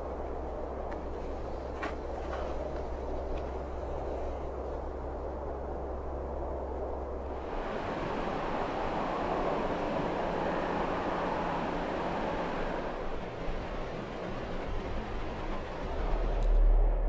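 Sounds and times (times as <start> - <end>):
vehicle passing on road: 7.2 - 17.0.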